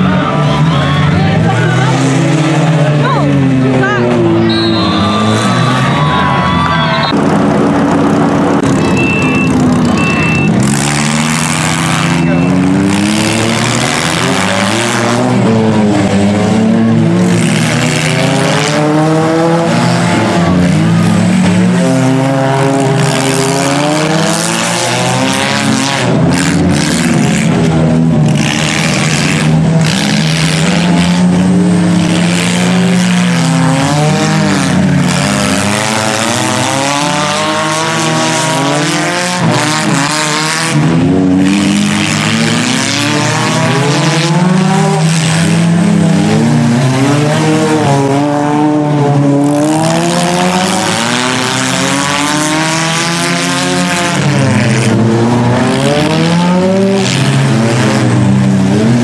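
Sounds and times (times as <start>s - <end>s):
car engines revving: 0.0s - 59.0s.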